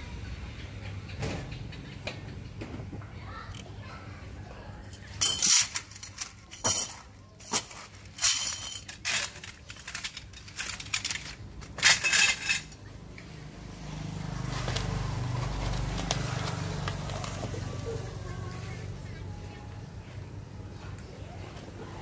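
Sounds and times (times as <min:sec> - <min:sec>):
small metal pieces clinking: 0:04.9 - 0:12.9.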